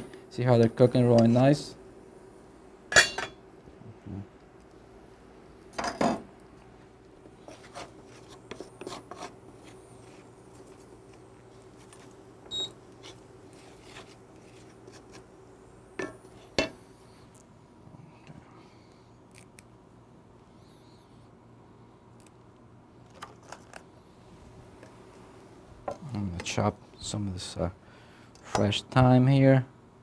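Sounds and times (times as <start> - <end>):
faint steady hum: 0.0 - 30.0
wooden spoon scraping in pan: 7.4 - 10.3.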